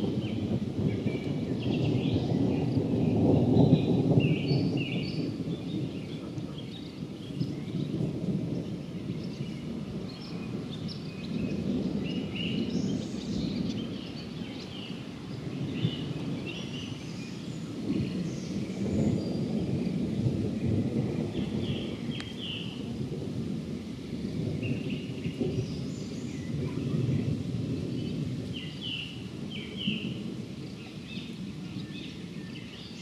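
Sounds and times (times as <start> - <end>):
thunder rumbling: 0.0 - 33.0
birds chirping and singing: 8.6 - 20.1, 21.2 - 22.8, 24.5 - 33.0.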